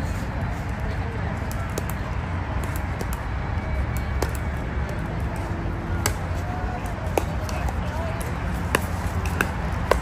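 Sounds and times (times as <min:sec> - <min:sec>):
paddles striking plastic ball: 0:06.8 - 0:10.0.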